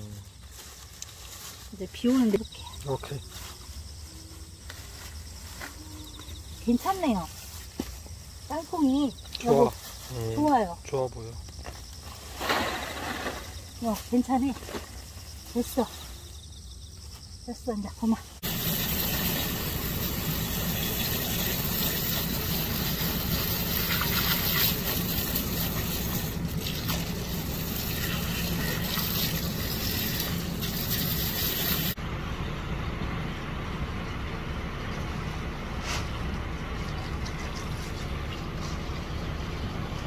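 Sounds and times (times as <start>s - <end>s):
hose water spraying: 18.4s - 32.0s.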